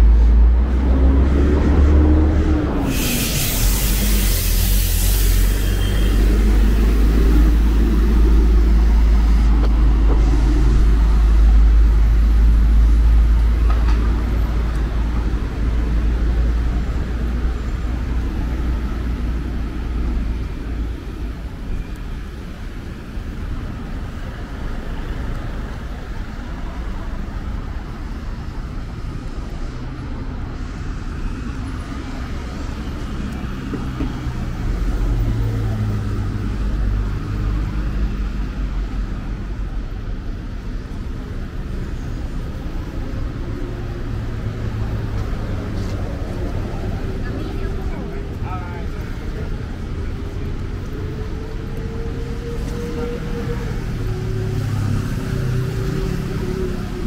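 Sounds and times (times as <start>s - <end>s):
cars and buses passing: 0.0s - 57.0s.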